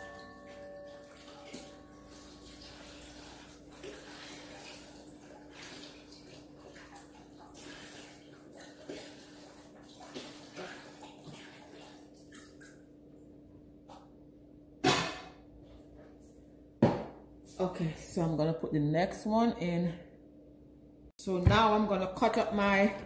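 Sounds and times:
broth pouring into a pot: 0:00.0 - 0:12.4.

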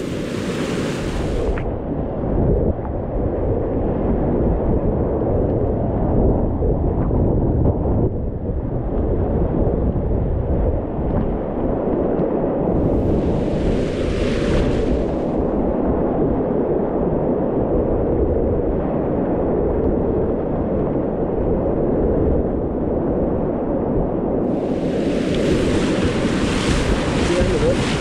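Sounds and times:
splashing spray hiss: 0:24.5 - 0:28.0
whitewater rapids roaring: 0:24.6 - 0:28.0.

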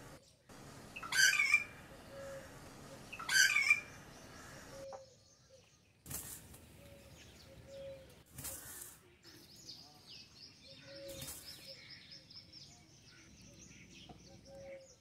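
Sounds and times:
heron harsh calls: 0:01.0 - 0:04.7
rustling and wingbeats: 0:06.0 - 0:07.0, 0:08.0 - 0:09.1, 0:11.0 - 0:11.8.

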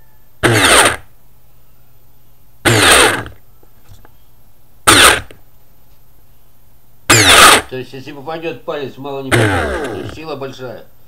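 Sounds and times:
faint steady hum: 0:00.0 - 0:11.0
electric motor whirring bursts: 0:00.4 - 0:01.1, 0:02.6 - 0:03.4, 0:04.8 - 0:05.4, 0:07.1 - 0:07.7, 0:09.3 - 0:10.2.

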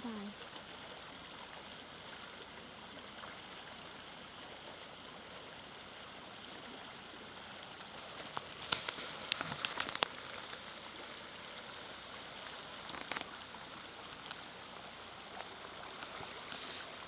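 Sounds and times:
stream flowing: 0:00.0 - 0:17.0
sharp clicks and rustles: 0:07.9 - 0:10.6.

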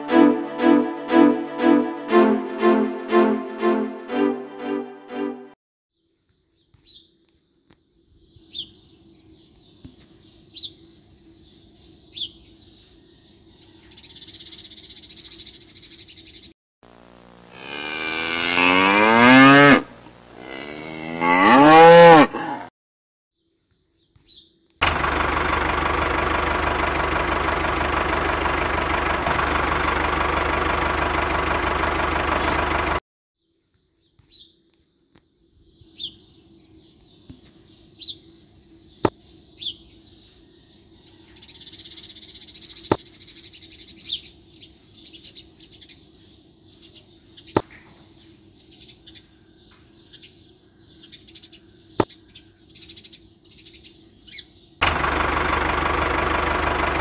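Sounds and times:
birds chirping: 0:06.3 - 0:16.5, 0:33.8 - 0:54.9.

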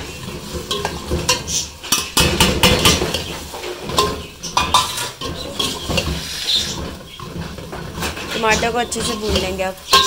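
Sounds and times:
metal spoon clinking in pot: 0:00.5 - 0:10.0.

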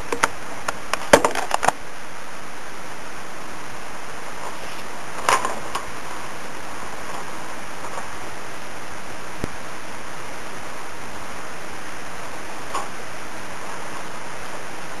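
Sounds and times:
microphone hiss: 0:00.0 - 0:15.0.

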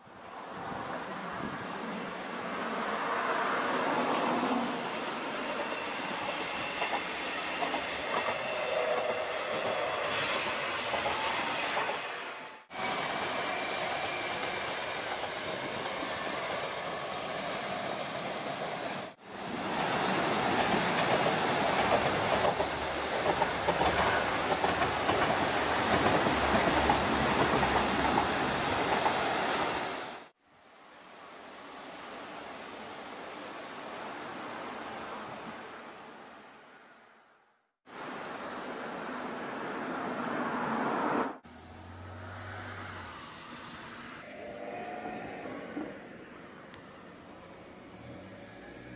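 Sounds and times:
train rumbling over bridge: 0:00.3 - 0:30.3
wheels clickety-clack: 0:05.5 - 0:10.0, 0:20.5 - 0:29.2.

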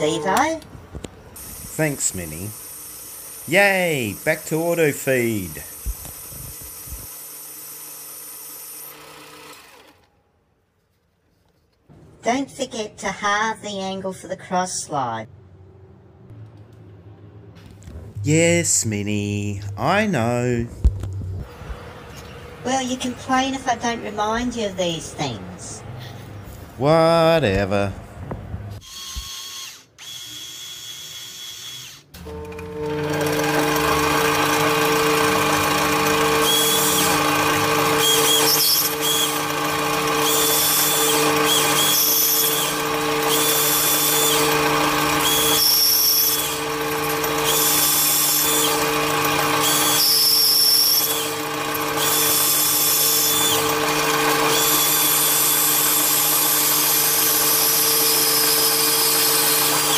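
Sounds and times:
lathe motor humming: 0:01.4 - 0:10.0, 0:32.2 - 0:59.9.

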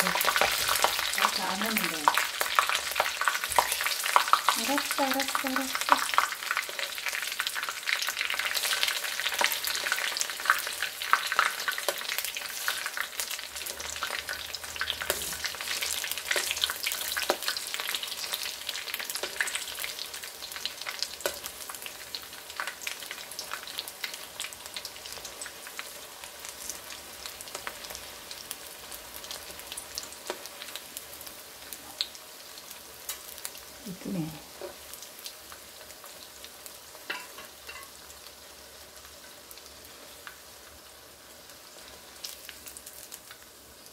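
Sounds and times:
flowers deep-frying in hot oil: 0:00.0 - 0:43.9
metal tongs in pan: 0:14.8 - 0:17.6, 0:21.2 - 0:21.5, 0:33.0 - 0:33.5, 0:37.0 - 0:38.0.

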